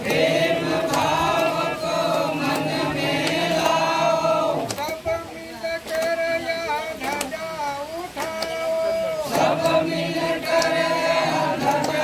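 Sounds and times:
group chanting in unison: 0.0s - 4.8s, 8.9s - 12.0s.

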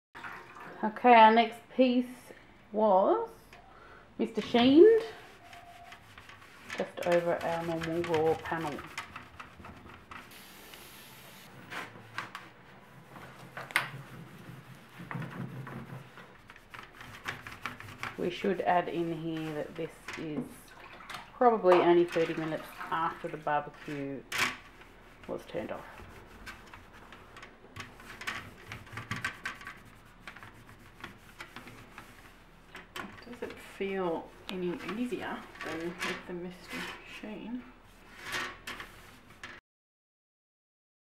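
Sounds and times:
cloth wiping metal panel: 4.4s - 20.0s, 22.9s - 39.5s
aerosol can hissing: 10.3s - 11.5s.

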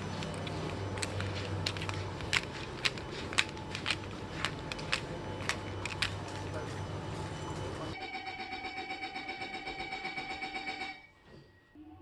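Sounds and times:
metro car low hum: 0.0s - 8.0s.

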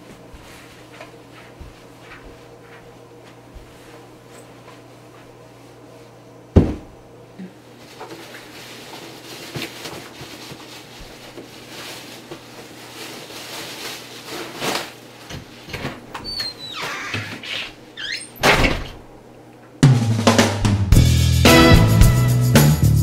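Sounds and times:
plastic bag crinkling: 7.8s - 15.0s.

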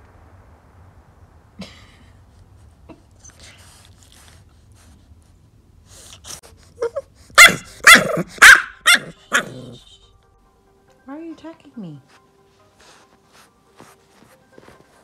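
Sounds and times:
puppy barking: 6.8s - 9.8s.

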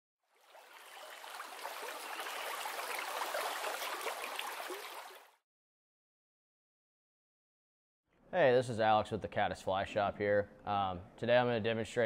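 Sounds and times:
stream water rushing: 0.4s - 5.3s.

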